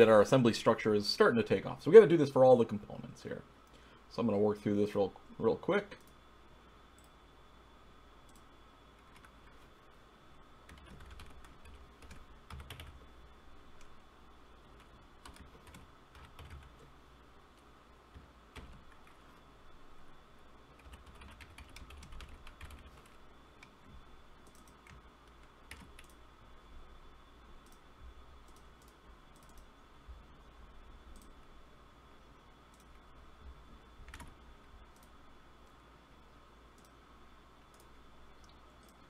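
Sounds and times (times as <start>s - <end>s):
faint electrical whine: 0.0s - 39.0s
keyboard typing: 9.0s - 9.7s, 10.7s - 13.0s, 14.8s - 16.8s, 18.1s - 19.2s, 20.8s - 23.8s, 24.4s - 26.2s, 34.1s - 34.3s
mouse clicks: 28.5s - 29.7s.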